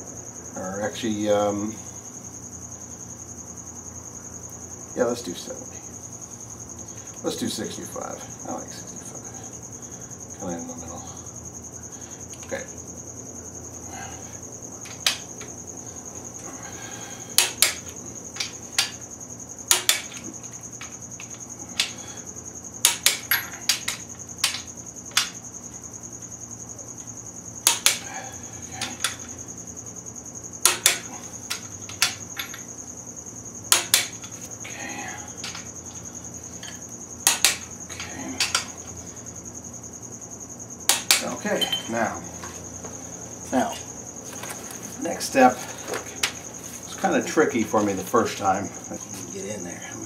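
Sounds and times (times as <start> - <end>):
steady high-pitched whine: 0.0 - 50.0.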